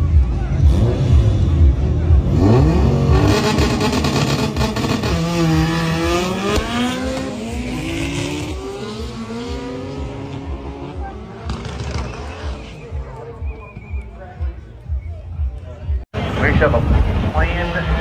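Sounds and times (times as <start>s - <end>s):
drag racing cars accelerating: 0.1s - 13.3s.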